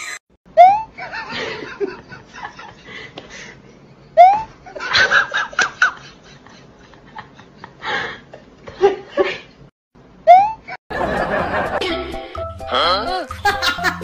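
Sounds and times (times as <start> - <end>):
person laughing: 13.2 - 14.0.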